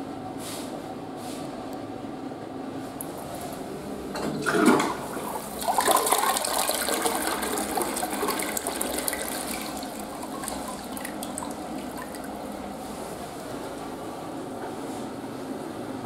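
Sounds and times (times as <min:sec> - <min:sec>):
toilet flushing: 0:03.3 - 0:14.0
water trickling as bowl refills: 0:04.2 - 0:12.8.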